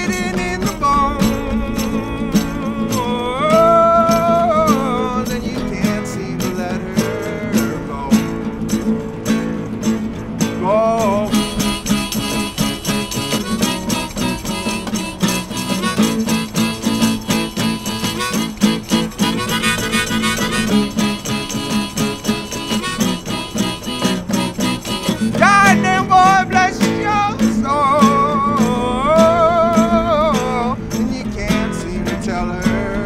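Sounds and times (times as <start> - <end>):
acoustic guitar strumming: 0.0 - 33.0
harmonica with bent notes: 0.0 - 33.0.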